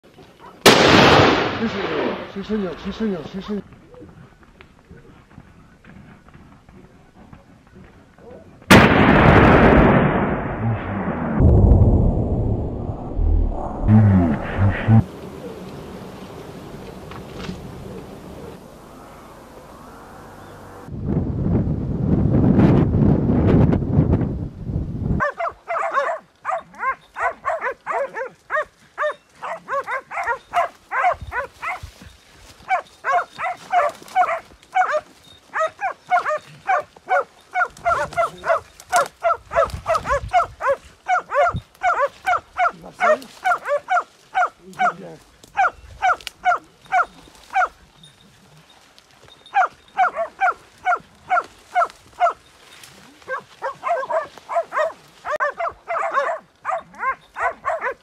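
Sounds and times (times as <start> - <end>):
hounds barking: 0.4 - 0.6, 25.2 - 32.0, 32.6 - 48.2, 49.4 - 52.5, 53.1 - 58.0
wind rumble on microphone: 10.5 - 25.6, 31.0 - 32.6, 39.4 - 41.8.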